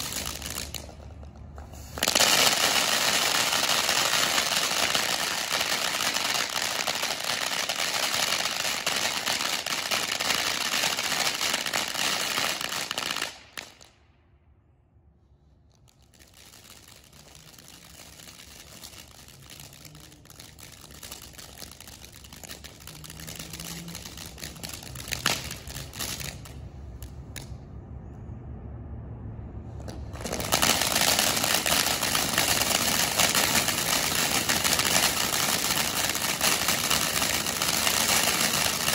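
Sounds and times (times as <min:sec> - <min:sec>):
firework fountain hissing: 0:00.0 - 0:13.9, 0:16.0 - 0:27.1, 0:29.9 - 0:38.9
sharp crack: 0:00.0 - 0:14.1, 0:15.8 - 0:27.7, 0:29.8 - 0:38.9
low rumble: 0:22.6 - 0:30.6.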